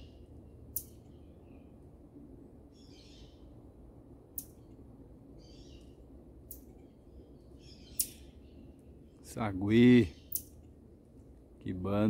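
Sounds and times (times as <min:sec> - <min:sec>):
marmoset twittering: 0:07.6 - 0:08.4, 0:10.0 - 0:10.5.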